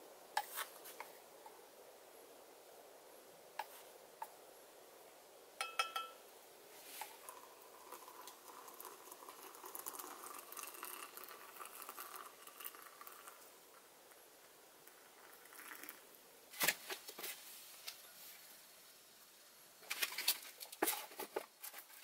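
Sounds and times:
water pouring into a mug: 7.0 - 16.2.

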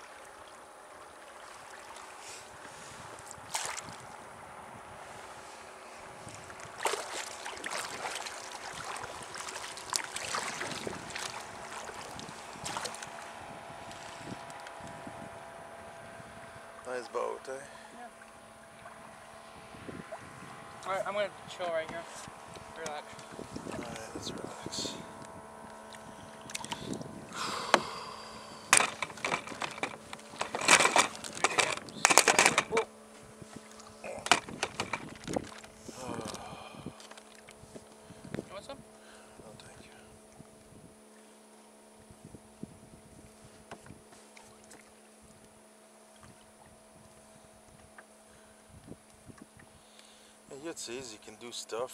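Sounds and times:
waves slapping kayak hull: 0.0 - 16.9, 17.6 - 25.0, 25.6 - 40.4
wind hiss on water: 26.0 - 28.8.

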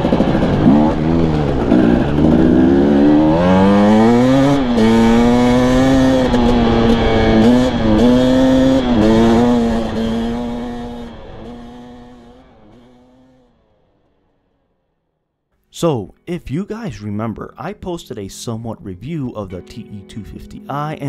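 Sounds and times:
dirt bike engine revving: 0.0 - 13.6.

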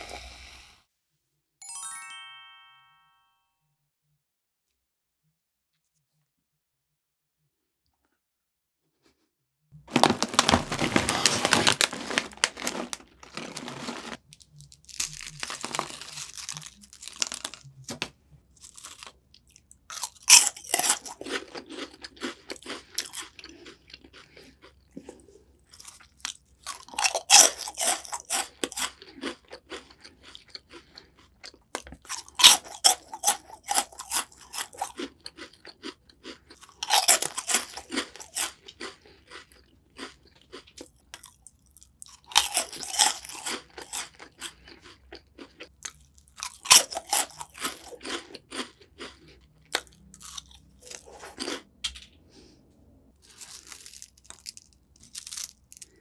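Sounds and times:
plastic snack bag crinkling: 9.8 - 31.1, 31.8 - 51.6, 53.2 - 56.0
crunching bites of snack: 9.8 - 51.9, 53.2 - 56.0
chewing: 10.6 - 17.9, 18.5 - 51.8, 53.2 - 56.0.

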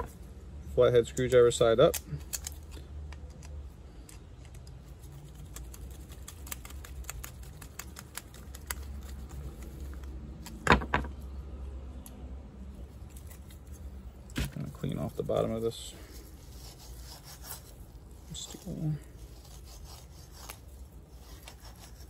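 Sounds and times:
screwdriver and metal parts clicking: 1.0 - 4.8.

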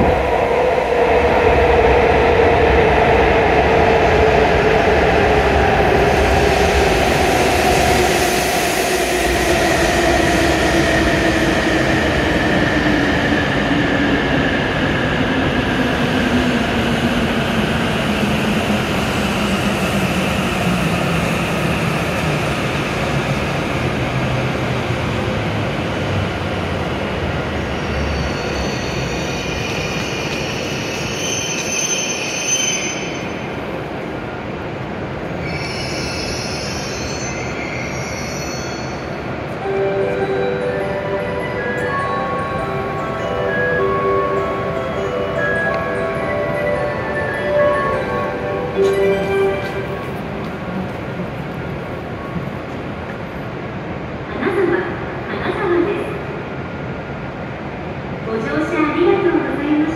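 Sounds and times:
high squeal: 27.6 - 33.5, 35.4 - 39.2.

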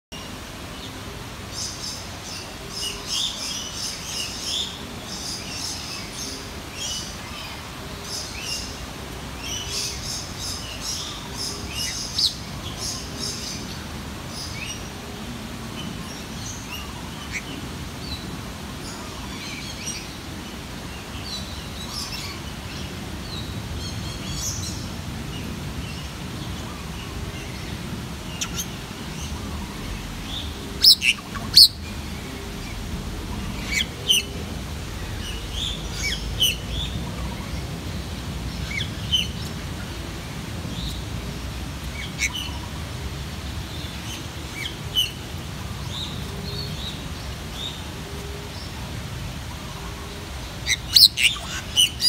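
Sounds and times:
birds chirping: 15.7 - 52.0.

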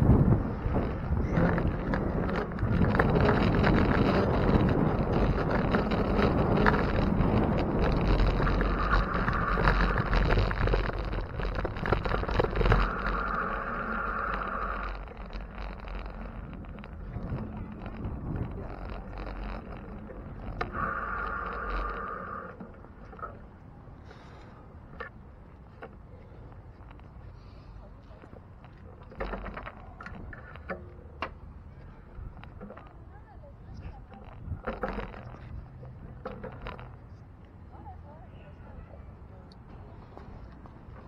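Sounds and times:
wind buffeting microphone: 0.0 - 24.0, 31.6 - 37.4
tyre and street noise: 0.0 - 41.0.

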